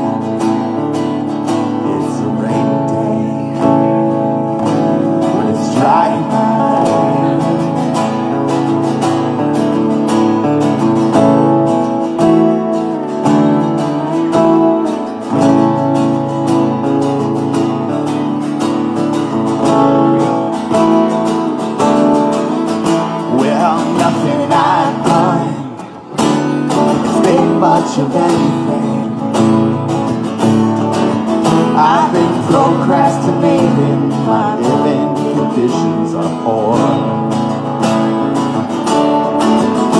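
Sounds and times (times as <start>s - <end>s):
acoustic guitars strumming: 0.0s - 39.9s
person singing: 1.6s - 8.5s, 23.0s - 26.1s, 26.7s - 29.7s, 31.4s - 37.3s.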